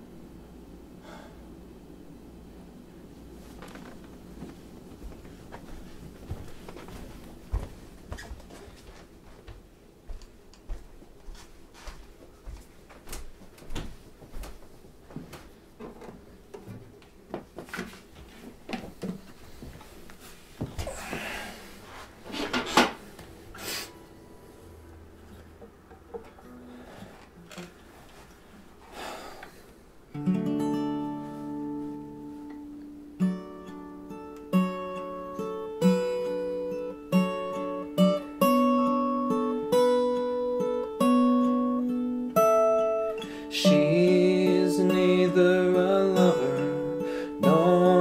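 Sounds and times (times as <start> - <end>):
footsteps: 3.3 - 23.9.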